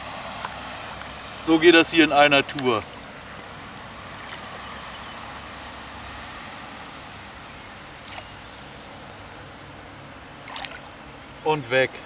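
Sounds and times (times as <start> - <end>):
light water sounds: 0.0 - 1.6, 2.4 - 5.3, 7.9 - 9.7, 10.3 - 12.0
outdoor background noise: 0.0 - 12.0
short water splash: 8.0 - 8.3, 10.4 - 10.9.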